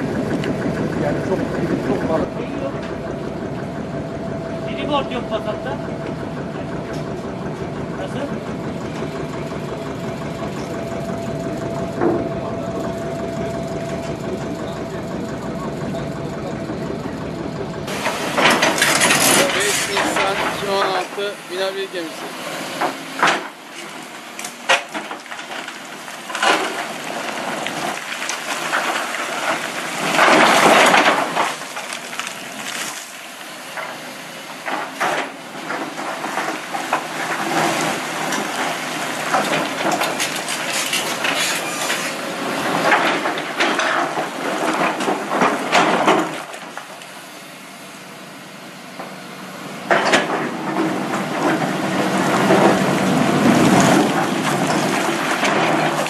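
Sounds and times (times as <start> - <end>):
excavator engine: 0.0 - 56.0
rocks grinding against steel bucket: 17.9 - 22.1, 25.4 - 33.1, 35.8 - 46.4, 50.2 - 56.0.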